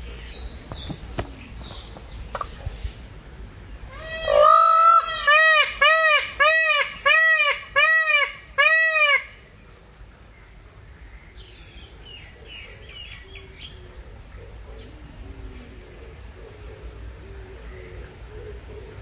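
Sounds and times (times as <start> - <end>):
small birds chirping: 0.0 - 4.4, 9.6 - 19.0
peacock honking cries: 3.9 - 9.5.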